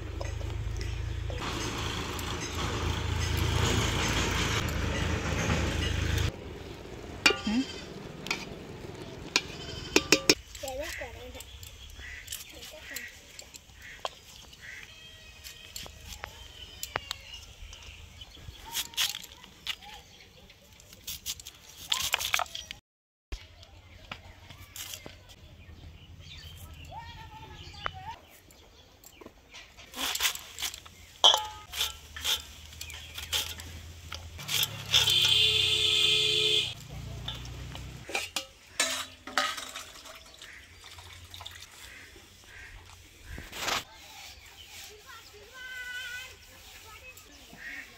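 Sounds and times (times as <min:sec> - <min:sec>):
birds chirping: 0:00.0 - 0:21.7, 0:23.4 - 0:47.9
steel dishes clinking: 0:07.3 - 0:08.6, 0:09.4 - 0:11.6, 0:29.6 - 0:35.4, 0:37.2 - 0:40.5.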